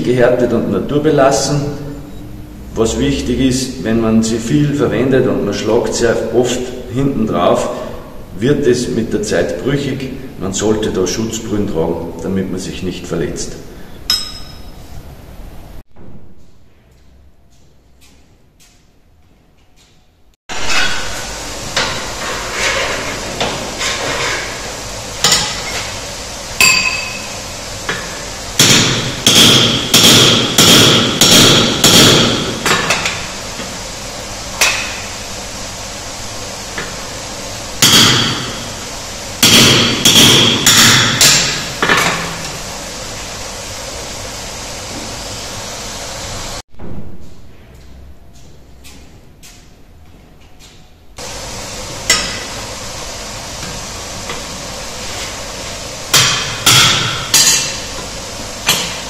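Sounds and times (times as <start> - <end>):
hammer striking chisel on hot steel: 14.1 - 14.8, 25.2 - 25.9, 26.6 - 33.2, 34.6 - 35.1, 37.8 - 38.6, 39.4 - 42.3, 52.1 - 52.6, 56.1 - 58.0, 58.6 - 59.0.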